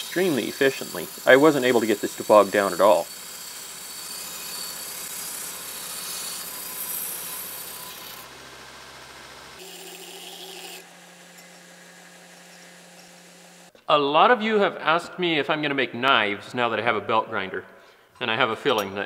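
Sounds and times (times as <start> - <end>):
belt grinder grinding steel: 0.0 - 13.7
steady motor hum: 0.0 - 13.7.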